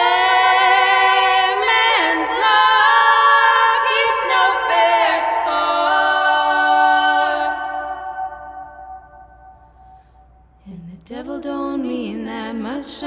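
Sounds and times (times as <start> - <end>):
women singing in harmony: 0.0 - 9.5, 10.7 - 13.0.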